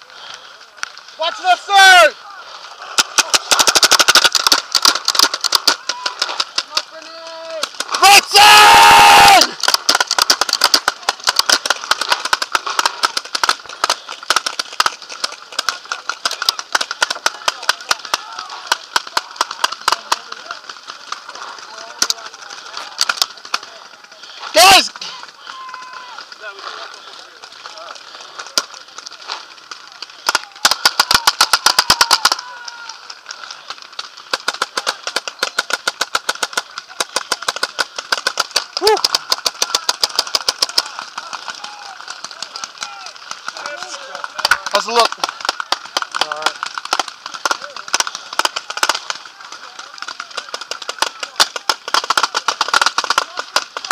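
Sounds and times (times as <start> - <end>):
paintball markers firing: 2.7 - 53.9
person shouting: 7.0 - 9.6, 24.5 - 26.2, 38.8 - 39.1.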